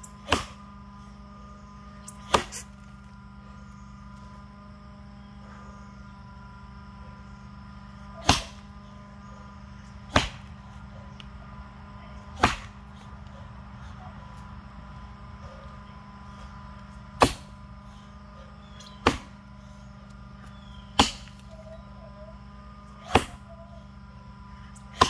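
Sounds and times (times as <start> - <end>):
axe striking a log: 0.2 - 0.6, 2.3 - 2.6, 8.2 - 8.6, 10.1 - 10.5, 12.4 - 12.7, 17.2 - 17.5, 19.0 - 19.3, 21.0 - 21.4, 23.0 - 23.4.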